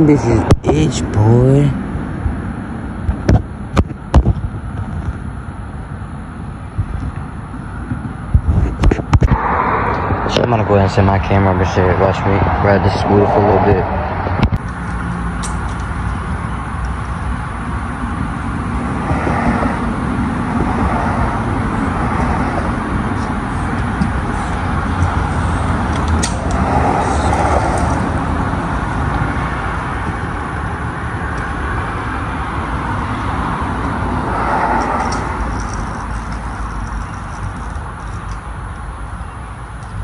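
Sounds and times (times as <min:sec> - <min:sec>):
scooter wheels rolling on concrete: 0:14.3 - 0:40.0.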